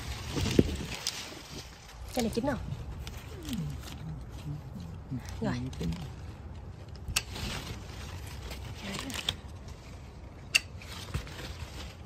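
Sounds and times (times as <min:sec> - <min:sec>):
leaves and branches rustling: 0:00.0 - 0:12.0
pruning shears snipping: 0:07.0 - 0:07.4, 0:10.5 - 0:10.9.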